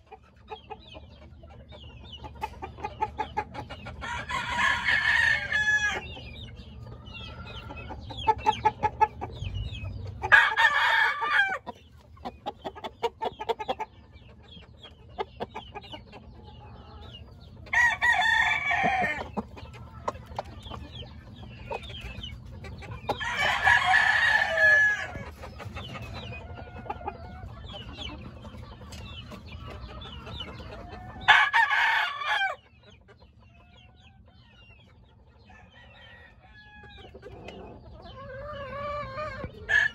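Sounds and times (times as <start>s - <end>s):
rapid clucking: 0.0s - 4.4s, 6.2s - 10.4s, 11.0s - 31.3s
rooster crowing: 10.3s - 11.6s, 17.7s - 19.2s, 23.2s - 25.2s, 31.3s - 32.6s.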